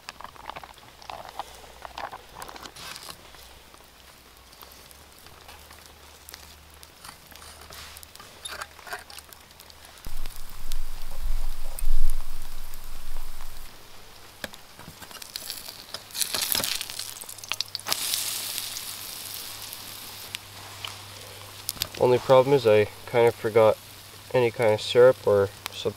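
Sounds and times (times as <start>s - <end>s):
batter sizzling in frying pan: 0.0s - 25.9s
campfire crackling and popping: 0.0s - 25.9s
low hum: 10.1s - 14.2s.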